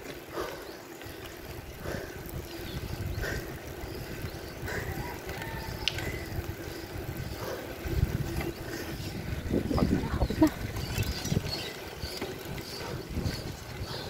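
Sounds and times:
bicycle clicks and rattles: 0:00.0 - 0:14.0
wind rumbling on microphone: 0:01.0 - 0:14.0.

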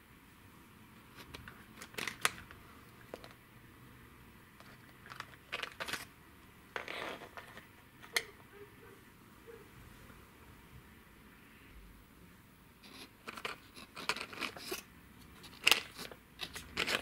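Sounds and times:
plastic toy cars clicking: 0:01.2 - 0:03.4, 0:04.6 - 0:06.1, 0:12.8 - 0:17.0
plastic wheels scraping wood floor: 0:06.8 - 0:07.6, 0:15.4 - 0:17.0.

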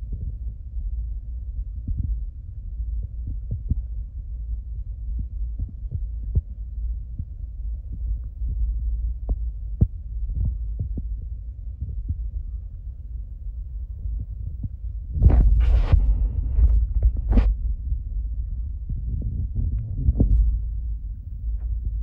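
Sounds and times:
wind buffeting microphone: 0:05.2 - 0:22.0.

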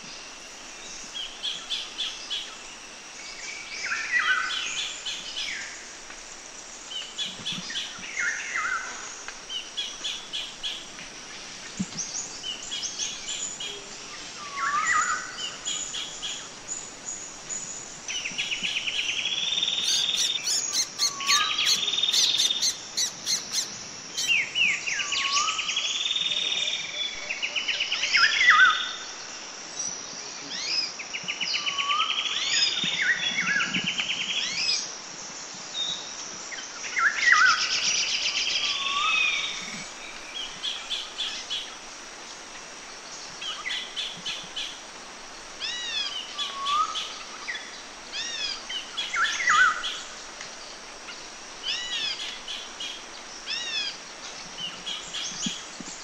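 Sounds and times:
background hiss: 0:00.0 - 0:56.0
bird chirps: 0:19.6 - 0:24.4
songbird trilled phrase: 0:19.8 - 0:24.4.

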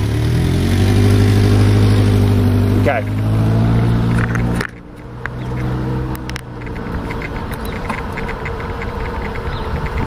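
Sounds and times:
road and wind noise: 0:00.0 - 0:10.0
vehicle engine humming: 0:00.0 - 0:10.0
light regular ticking: 0:04.2 - 0:10.0.

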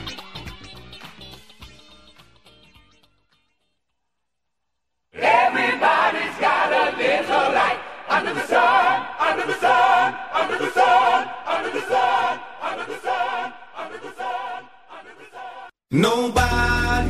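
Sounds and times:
choir singing: 0:05.2 - 0:15.8.

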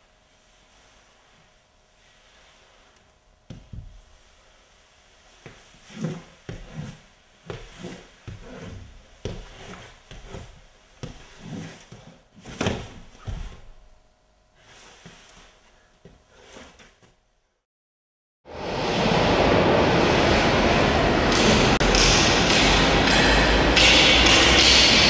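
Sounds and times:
knock on floor: 0:03.5 - 0:04.0
body scuffing on paper floor: 0:05.4 - 0:13.8, 0:14.6 - 0:17.2.

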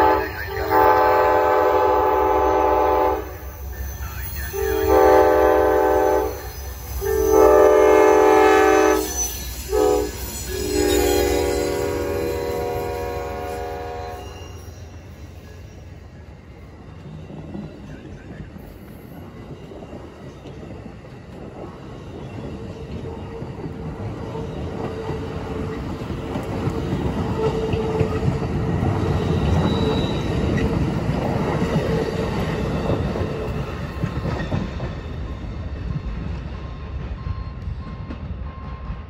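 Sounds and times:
faint wheel squeal: 0:08.9 - 0:12.8
train wheels rumbling and clattering: 0:14.6 - 0:39.0.

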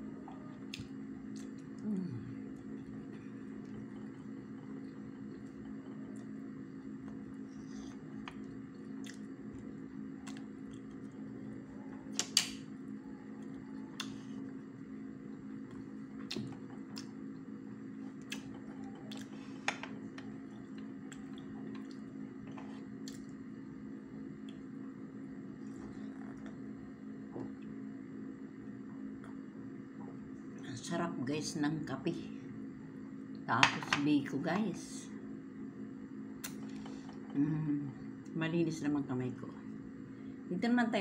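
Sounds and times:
low hum: 0:00.0 - 0:41.0
chewing: 0:07.0 - 0:11.3.

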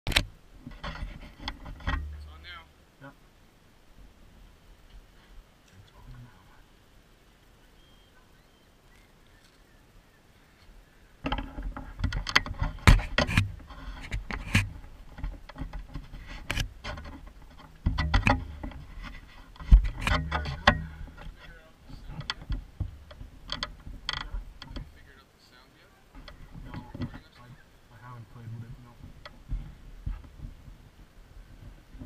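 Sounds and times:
camera handling knocks and rubbing: 0:11.2 - 0:24.9.

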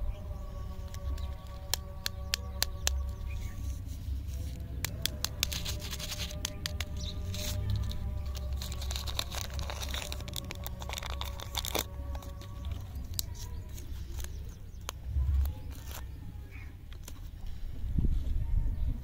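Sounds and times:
wrapper crackling and tearing: 0:00.7 - 0:03.4, 0:04.4 - 0:17.3
low rumble: 0:05.8 - 0:19.0.

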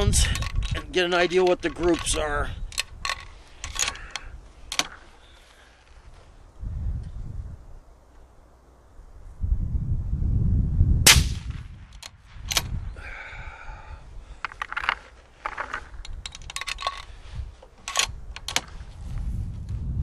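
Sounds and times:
metallic clicks of rifle handling: 0:00.0 - 0:05.1, 0:11.9 - 0:12.8, 0:14.4 - 0:18.9
rifle shot: 0:11.0 - 0:12.7.

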